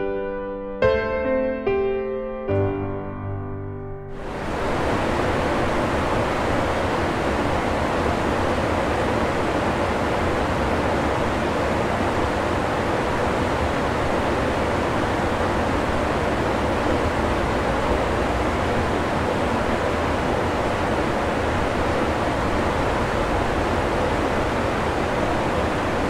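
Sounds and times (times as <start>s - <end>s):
river rushing over stones: 4.2s - 26.0s.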